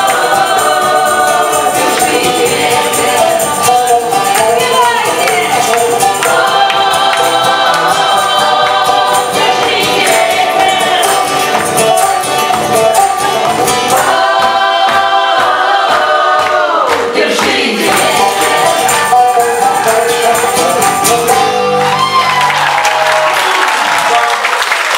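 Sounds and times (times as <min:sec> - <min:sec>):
tambourine: 0:00.0 - 0:14.2, 0:17.9 - 0:21.5
voices singing together: 0:00.0 - 0:21.5
banjo: 0:00.0 - 0:22.6
acoustic guitar: 0:00.0 - 0:23.0.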